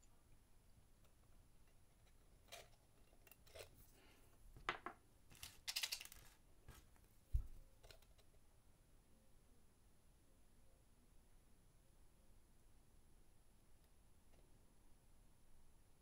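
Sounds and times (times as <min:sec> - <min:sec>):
small tools clicking and scraping: 0:01.0 - 0:03.8, 0:05.3 - 0:06.8.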